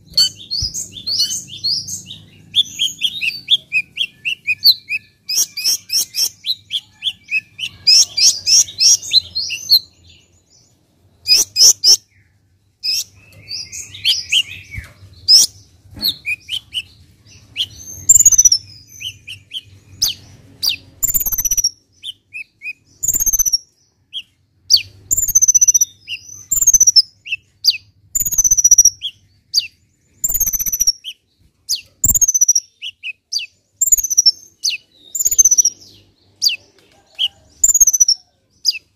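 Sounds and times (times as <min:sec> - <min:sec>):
bird twittering chirps: 0:00.0 - 0:38.9
bird whistled notes: 0:28.2 - 0:31.2, 0:32.0 - 0:33.2, 0:33.8 - 0:35.8.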